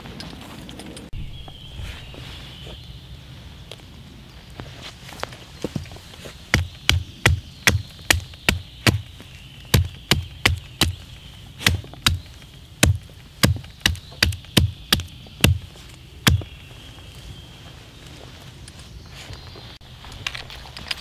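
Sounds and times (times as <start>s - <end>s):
hatchet chopping wood: 6.5s - 9.1s, 9.7s - 11.0s, 11.6s - 16.5s.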